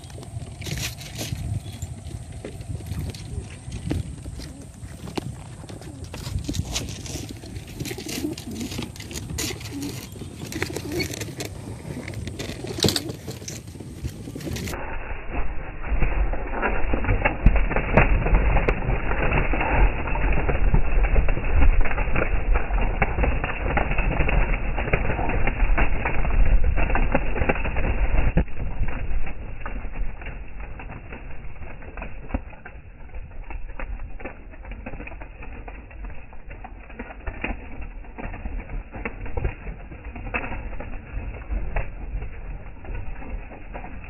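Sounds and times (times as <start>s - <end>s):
pigeons cooing: 0.0s - 14.8s
pigeon wings flapping: 0.0s - 44.0s.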